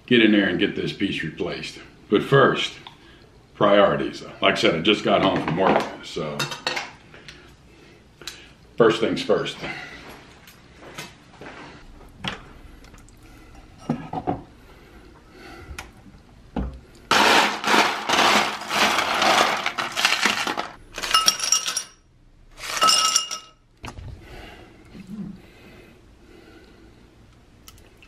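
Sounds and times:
ice cubes scooped crunching: 0:17.1 - 0:21.4
ice clinking into glass: 0:17.2 - 0:22.0, 0:22.6 - 0:23.6.

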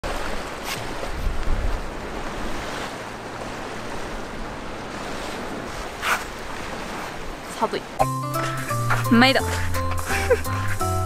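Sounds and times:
sea surf on rocky shore: 0:00.0 - 0:10.4
wind buffeting microphone: 0:00.1 - 0:07.5.

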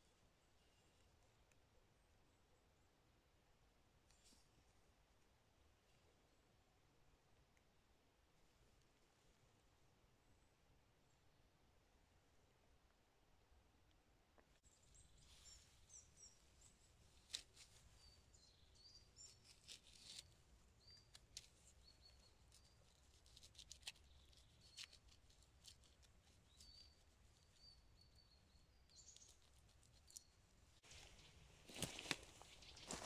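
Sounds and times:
small birds chirping: 0:14.4 - 0:33.0.

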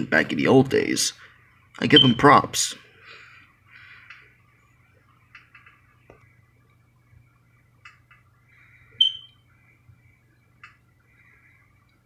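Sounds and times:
low steady hum: 0:00.0 - 0:12.0
short high chirp-like tone: 0:09.0 - 0:09.4.

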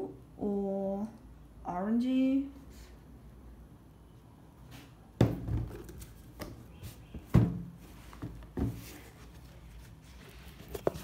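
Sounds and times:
thumps on cardboard box: 0:05.2 - 0:09.0.

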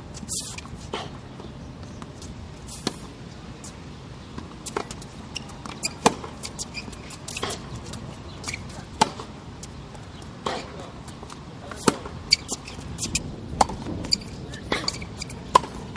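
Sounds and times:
tennis ball racket hits: 0:04.7 - 0:09.3, 0:11.7 - 0:15.8.

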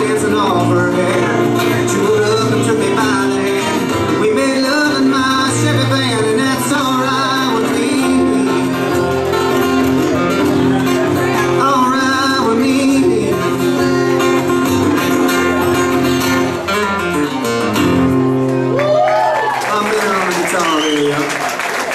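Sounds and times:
person singing: 0:00.0 - 0:09.4, 0:10.6 - 0:14.6
acoustic guitars strummed: 0:00.0 - 0:18.7
electric keyboard chords: 0:00.0 - 0:18.7.

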